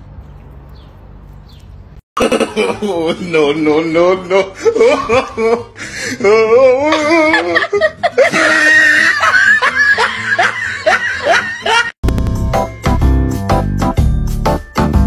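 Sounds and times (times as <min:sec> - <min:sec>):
person laughing: 0:02.2 - 0:11.9.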